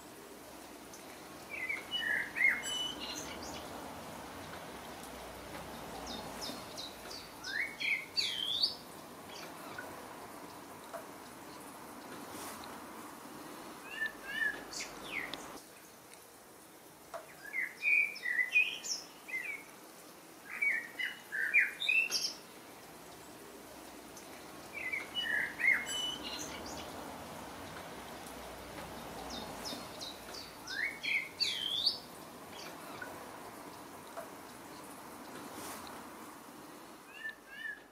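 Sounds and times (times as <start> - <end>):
soft background hiss: 0.0 - 37.9
warbler singing: 0.9 - 3.8, 5.7 - 9.9, 13.8 - 15.6, 17.3 - 19.6, 24.6 - 27.0, 29.0 - 33.1, 37.1 - 37.9.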